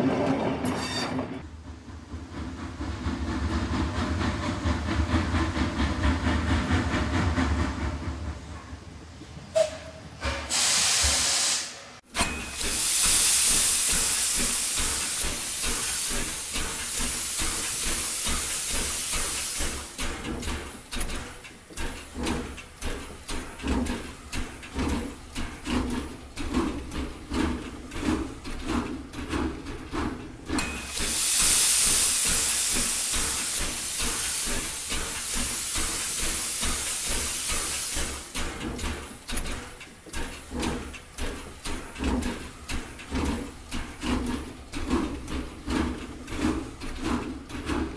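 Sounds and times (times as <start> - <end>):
rhythmic beat of steam train: 1.4 - 47.9
loud steam hisses: 10.3 - 20.0, 30.6 - 38.6.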